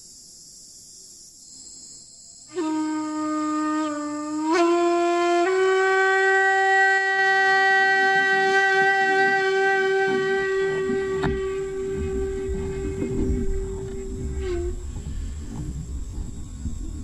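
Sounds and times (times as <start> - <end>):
wind instrument held notes: 2.5 - 15.6
low rumble: 10.8 - 17.0.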